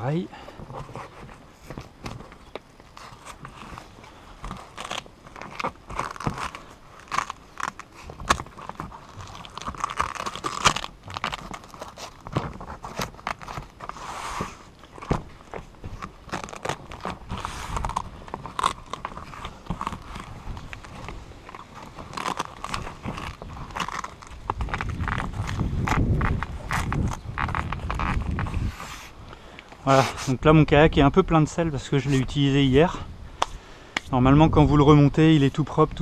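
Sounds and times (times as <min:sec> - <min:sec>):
fabric rustling and crinkling: 0:00.0 - 0:30.5
fabric rasps: 0:02.9 - 0:15.1, 0:16.0 - 0:29.2.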